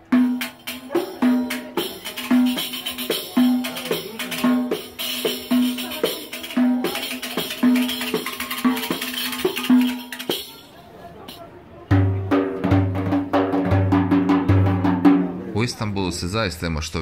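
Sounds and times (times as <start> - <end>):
frame drum with jingles: 0.0 - 15.5.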